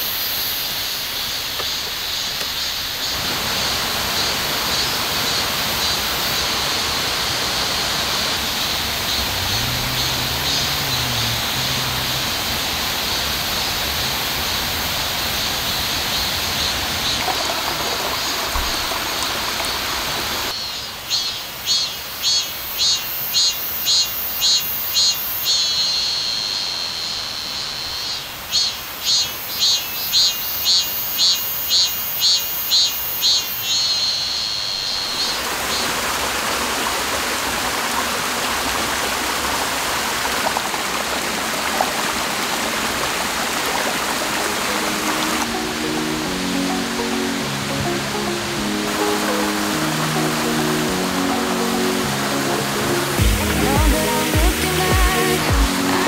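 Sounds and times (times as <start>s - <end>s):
cicada buzzing call: 0.0s - 36.8s
stream rushing over rocks: 1.3s - 20.5s, 34.9s - 56.0s.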